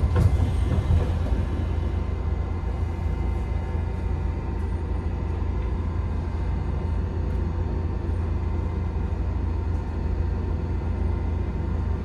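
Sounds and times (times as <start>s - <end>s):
train car low rumble and hum: 0.0s - 12.0s.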